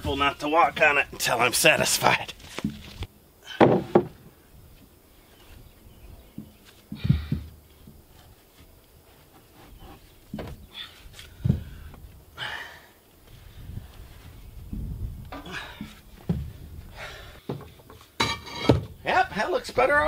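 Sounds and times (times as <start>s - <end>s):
wooden boards knocking: 3.6s - 4.2s.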